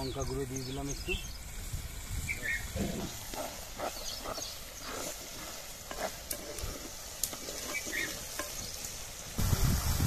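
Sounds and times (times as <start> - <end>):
masala sizzling in a pot: 0.0 - 10.0
wooden spatula scraping pot: 2.8 - 9.0.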